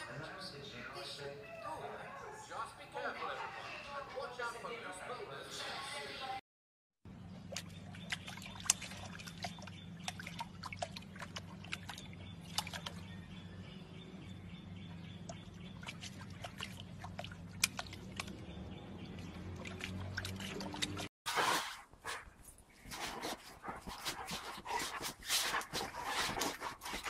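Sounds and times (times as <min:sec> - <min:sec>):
puppy lapping water: 0:07.4 - 0:13.2, 0:15.1 - 0:22.2, 0:22.8 - 0:27.0.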